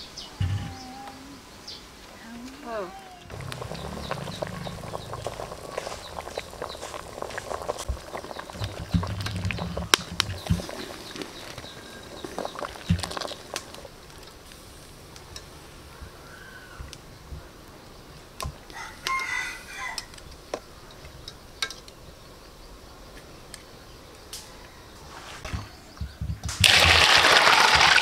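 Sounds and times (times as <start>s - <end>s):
rooster crowing: 18.7s - 20.1s.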